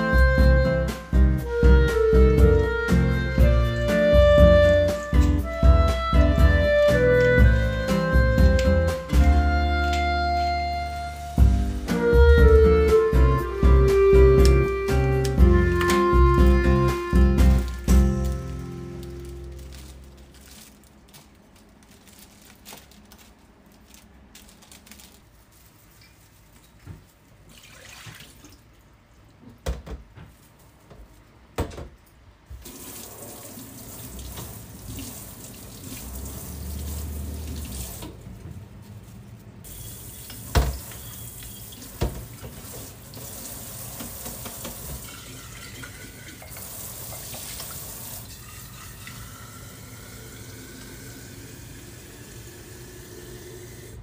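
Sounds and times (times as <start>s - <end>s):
flower wrapping rustling: 17.4s - 27.5s
tap running into metal sink: 40.2s - 48.2s.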